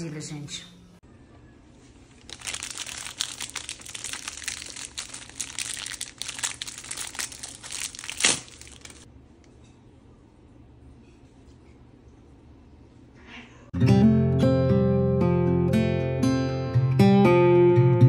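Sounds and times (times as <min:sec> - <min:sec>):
plastic wrapper crackling: 0:02.0 - 0:09.1
plastic packet tearing: 0:02.1 - 0:09.1.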